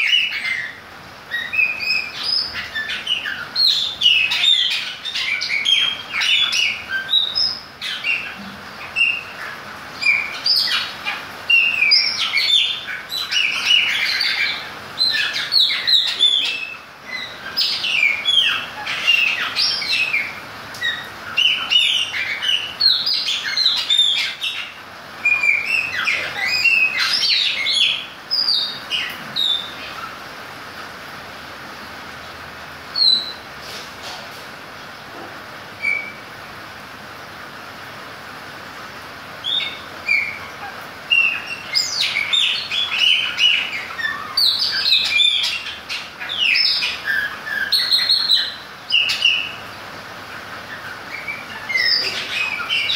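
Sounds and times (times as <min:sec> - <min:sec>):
bird singing whistles and chirps: 0:00.0 - 0:09.4, 0:11.5 - 0:30.1, 0:33.0 - 0:33.4, 0:35.8 - 0:36.2, 0:39.4 - 0:40.5, 0:41.1 - 0:49.6, 0:50.7 - 0:52.9.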